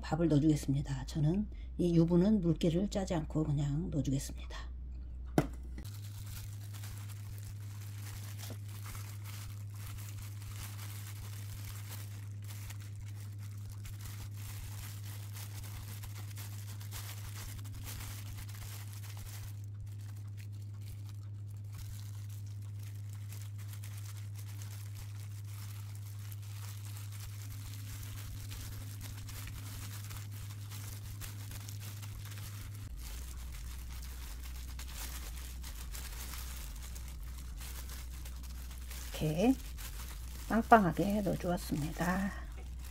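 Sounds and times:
low hum: 0:00.0 - 0:42.9
plastic gloves crinkling: 0:05.2 - 0:42.9.

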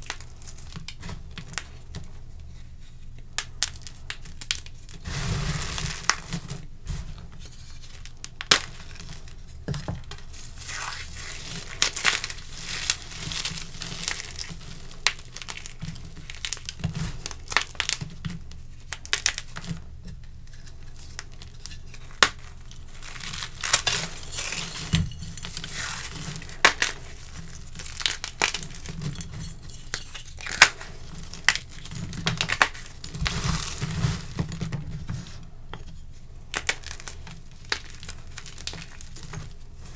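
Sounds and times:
chalk crushed between hands: 0:20.6 - 0:35.8.

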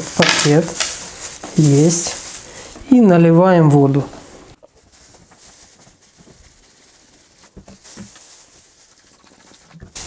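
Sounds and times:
water pouring into plastic bag: 0:00.0 - 0:02.8, 0:04.8 - 0:10.0
plastic bag crinkling: 0:00.0 - 0:10.0.

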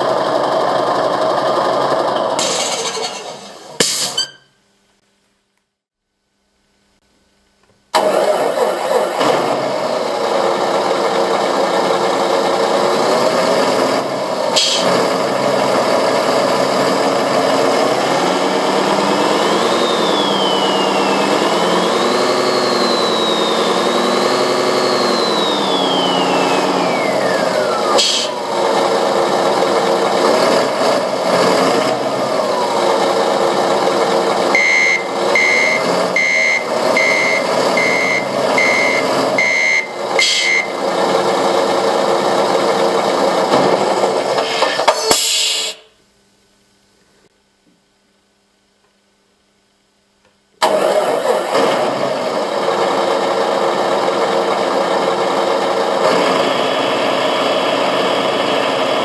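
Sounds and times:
simulated truck engine revving: 0:00.0 - 0:04.3, 0:08.0 - 0:44.9, 0:50.6 - 0:59.0
reversing beeper: 0:04.0 - 0:04.6, 0:19.1 - 0:28.5, 0:34.5 - 0:40.8.

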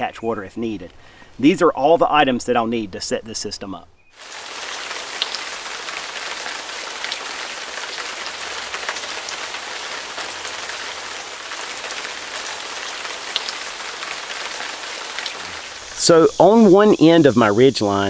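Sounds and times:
rain hissing: 0:04.2 - 0:18.0
raindrop ticks: 0:04.6 - 0:16.1.

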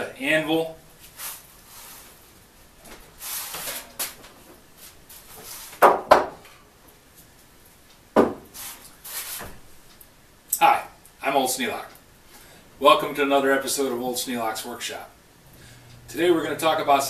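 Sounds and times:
shuffle of handling wood: 0:01.0 - 0:05.8, 0:08.3 - 0:09.7
log knocking on wooden workbench: 0:05.8 - 0:06.4, 0:08.2 - 0:08.5.

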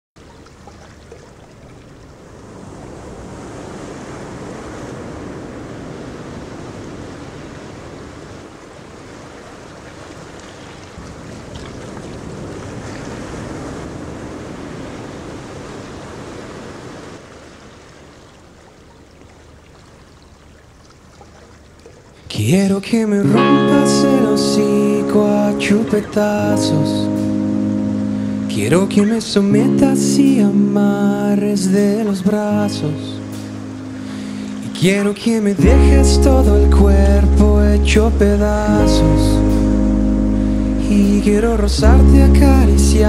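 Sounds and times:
ocean surf rushing: 0:02.3 - 0:09.8, 0:23.2 - 0:43.0.

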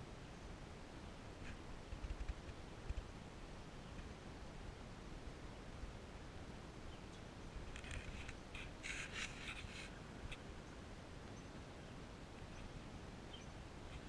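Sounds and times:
faint steady background noise: 0:00.0 - 0:14.0
scratchy rustling: 0:07.8 - 0:10.0.

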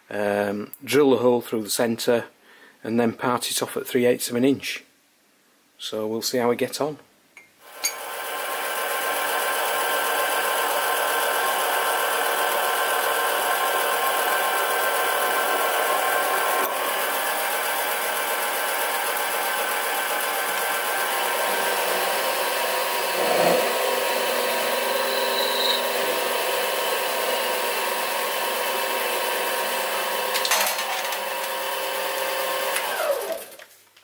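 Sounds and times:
lathe whining: 0:07.7 - 0:30.4.

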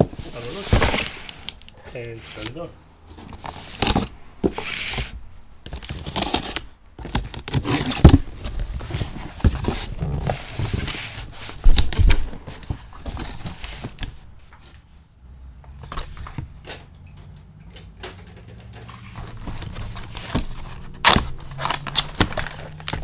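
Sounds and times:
cardboard packaging handled: 0:00.0 - 0:01.7, 0:02.3 - 0:14.7, 0:18.9 - 0:23.0
plastic wrap crinkling: 0:19.1 - 0:23.0.

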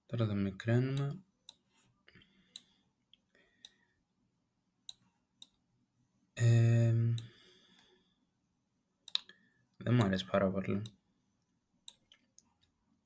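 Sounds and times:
man humming: 0:06.4 - 0:07.3.

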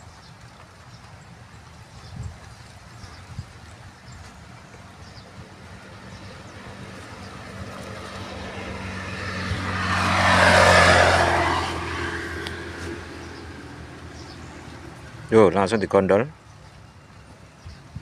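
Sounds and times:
motor vehicle driving past: 0:04.8 - 0:15.5.

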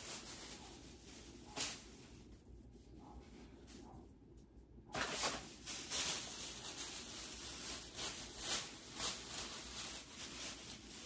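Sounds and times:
plastic bag rustling: 0:00.0 - 0:02.6, 0:04.8 - 0:11.0.

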